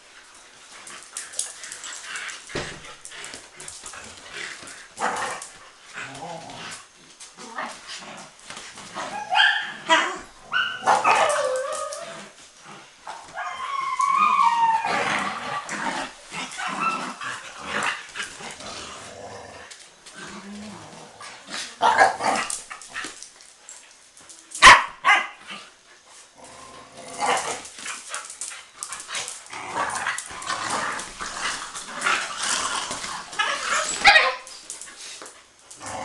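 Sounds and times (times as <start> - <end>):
young dogs barking and yipping: 8.8 - 12.4, 13.0 - 18.6, 21.8 - 25.8, 27.2 - 36.0.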